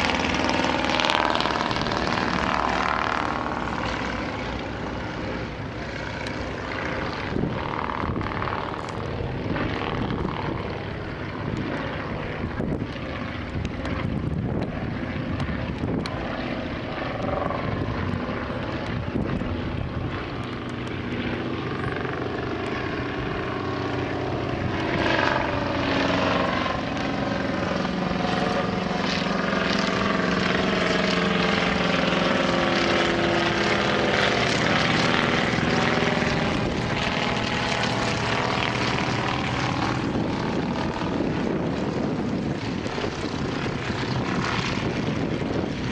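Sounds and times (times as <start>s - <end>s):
propeller aircraft engines droning: 0.0s - 45.9s.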